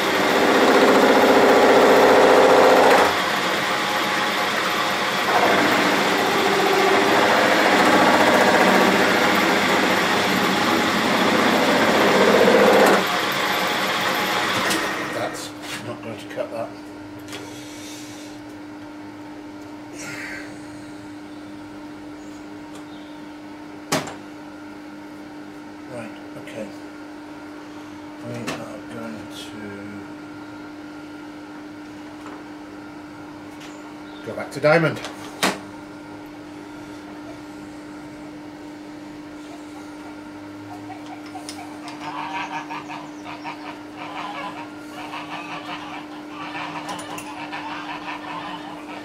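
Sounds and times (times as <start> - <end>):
lathe humming: 0.0 - 15.4.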